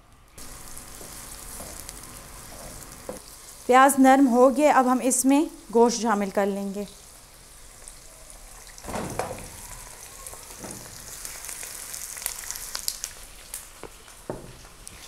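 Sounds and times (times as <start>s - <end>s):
hot oil sizzling and crackling: 0.4s - 15.0s
meat landing in wok thump: 8.8s - 9.6s.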